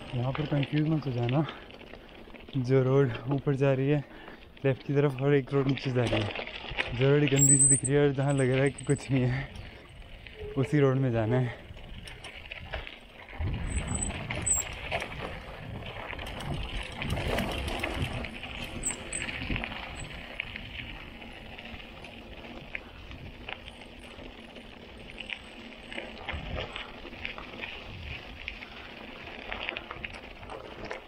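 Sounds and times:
bike tyres rolling on dirt: 0.0 - 31.0
bike knocks and rattles: 11.9 - 20.1.

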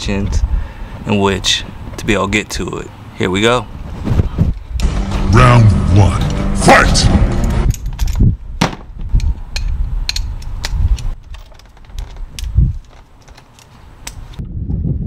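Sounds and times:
dull low thumps: 4.0 - 11.2
socket wrench clicking: 9.2 - 14.4.

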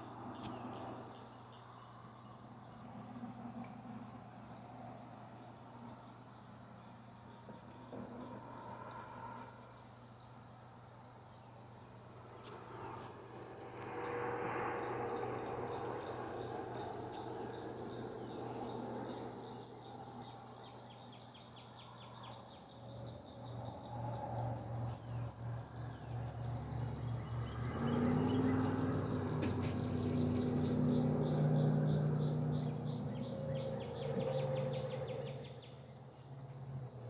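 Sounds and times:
insects chirping: 0.0 - 37.0.

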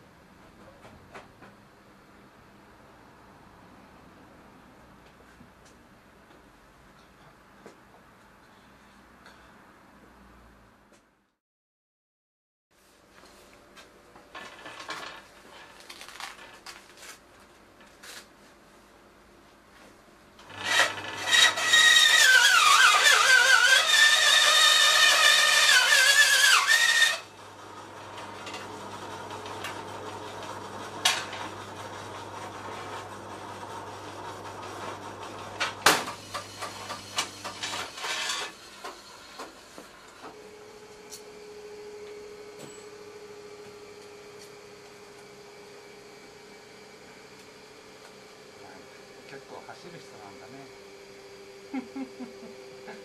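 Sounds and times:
saw motor humming: 20.4 - 38.6
band saw grinding steel: 20.4 - 39.4.

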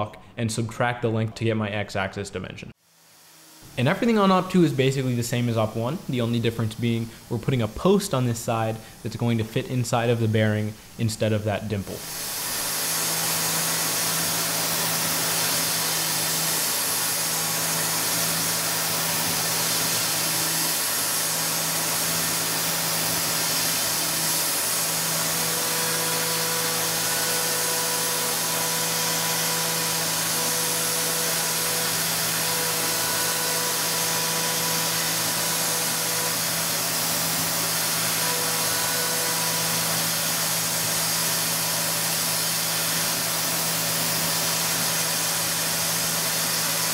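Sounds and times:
mill spindle hum: 11.9 - 41.5
high hiss from nozzle: 12.0 - 38.2.

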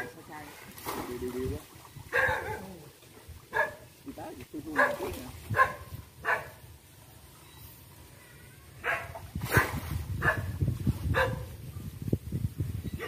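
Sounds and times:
dog barking: 2.1 - 2.7, 3.5 - 3.8, 4.8 - 6.6, 8.8 - 9.6, 10.2 - 10.5, 11.1 - 11.5.

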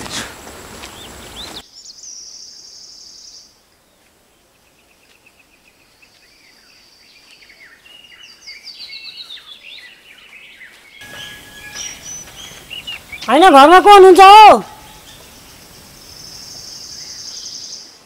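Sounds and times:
insect chirps: 0.0 - 8.7, 11.0 - 14.0, 14.6 - 18.0
bird calls: 0.1 - 13.7, 14.7 - 18.0
insect drone: 14.7 - 18.0.

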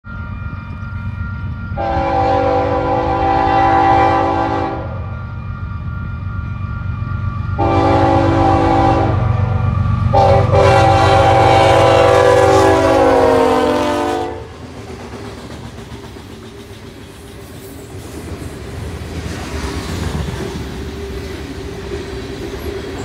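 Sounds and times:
train rumbling: 0.0 - 23.0
locomotive air horn blasts: 1.8 - 5.1, 7.6 - 14.6.

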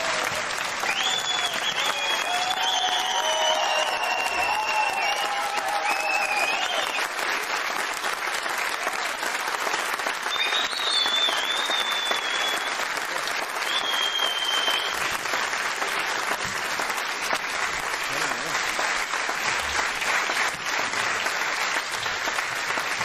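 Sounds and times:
audience applause: 0.0 - 23.0
high whistles: 0.8 - 7.1, 10.2 - 12.8, 13.6 - 15.1.

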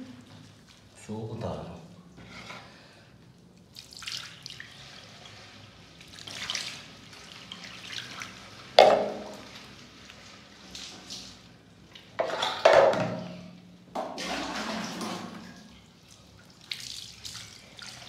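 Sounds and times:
water splashing into washbasin: 3.7 - 18.0.

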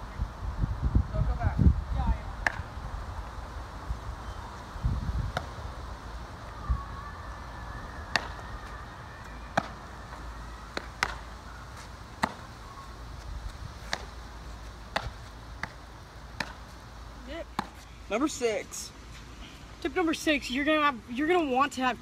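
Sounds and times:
baseball popping into glove: 8.1 - 8.4, 10.7 - 11.3, 12.2 - 12.5, 13.8 - 14.2, 16.4 - 16.6.

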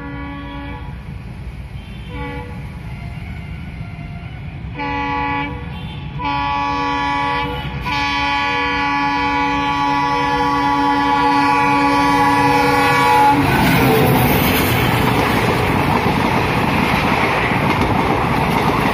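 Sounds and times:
locomotive horn blasts: 0.0 - 1.0, 1.8 - 15.1.

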